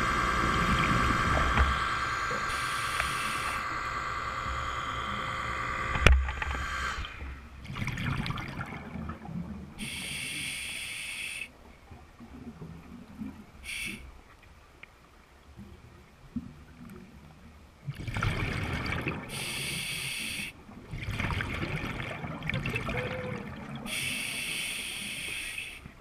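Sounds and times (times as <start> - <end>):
regulator hissing inhalations: 1.7 - 5.0, 9.8 - 11.5, 13.6 - 14.1, 19.3 - 20.6, 23.9 - 25.9
bubbling exhalations: 21.0 - 24.0.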